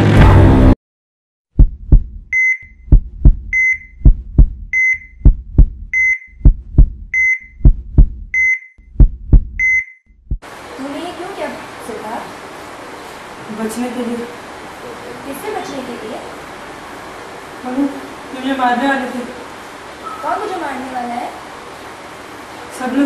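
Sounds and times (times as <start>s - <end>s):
heartbeat thumps: 1.5s - 10.5s
heart monitor beeping: 1.6s - 10.4s.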